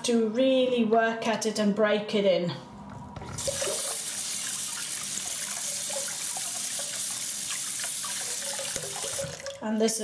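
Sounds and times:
water splashing into basin: 0:03.2 - 0:09.6.

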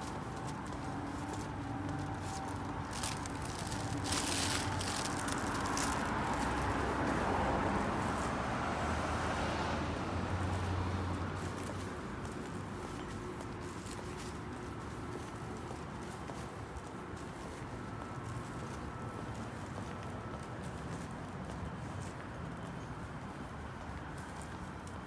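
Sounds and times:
car passing: 0:02.6 - 0:11.9.

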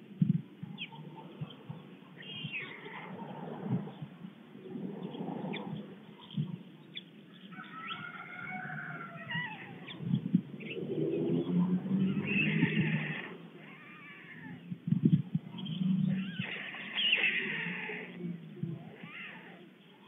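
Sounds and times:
songbirds singing: 0:00.0 - 0:20.0
stork chicks calling: 0:05.0 - 0:20.0.

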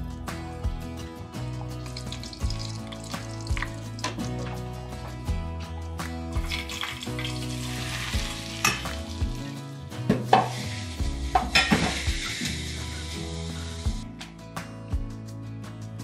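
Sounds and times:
seeds sizzling in hot oil: 0:01.8 - 0:04.0, 0:06.4 - 0:09.6, 0:10.3 - 0:14.0
hot oil sizzling over greens: 0:01.8 - 0:04.4, 0:06.4 - 0:09.6, 0:10.3 - 0:14.0
oil crackling and popping: 0:01.8 - 0:04.4, 0:06.3 - 0:09.6.

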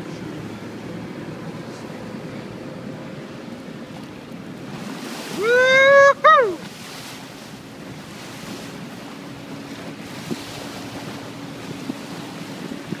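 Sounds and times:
faint low engine hum: 0:00.0 - 0:13.0
rush of water: 0:00.0 - 0:13.0
wind on microphone: 0:07.9 - 0:13.0.

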